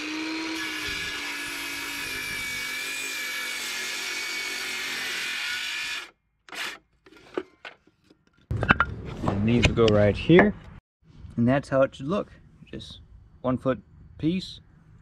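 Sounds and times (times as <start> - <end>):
circular saw cutting wood: 0.0 - 7.4.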